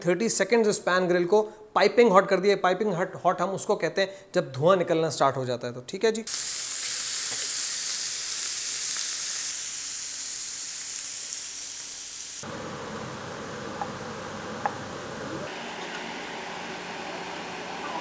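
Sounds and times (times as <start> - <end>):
meat sizzling on grill pan: 6.3 - 12.4.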